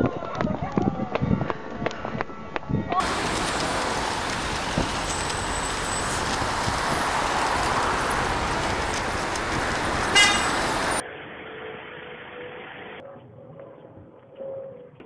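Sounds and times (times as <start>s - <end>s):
road traffic noise: 3.0s - 13.0s
vehicle horn toot: 10.0s - 11.0s.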